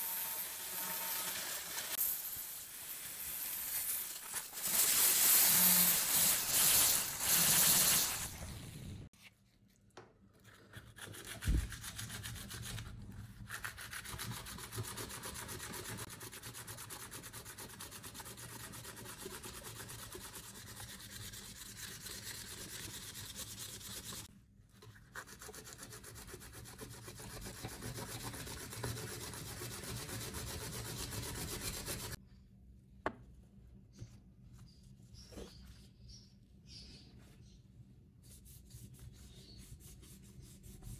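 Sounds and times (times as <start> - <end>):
sandpaper sanding wood: 13.5 - 24.3, 25.2 - 32.2, 38.2 - 40.9.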